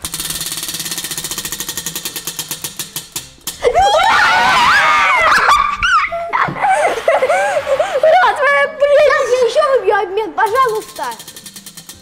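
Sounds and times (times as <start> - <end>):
prize wheel ticking: 0.0 - 4.6, 10.4 - 12.0
children laughing and shouting: 3.6 - 10.5.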